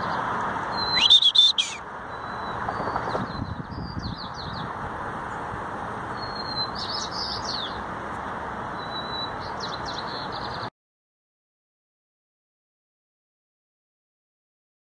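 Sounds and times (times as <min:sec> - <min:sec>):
small birds chirping: 0:00.0 - 0:10.7.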